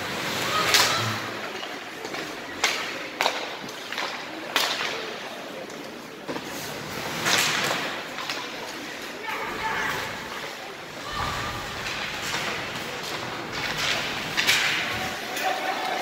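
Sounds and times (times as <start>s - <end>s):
rink background noise: 0.0s - 16.0s
hockey sticks cracking: 0.4s - 10.6s, 11.4s - 16.0s
puck striking ice and boards: 0.6s - 5.2s, 7.1s - 8.8s, 11.4s - 16.0s.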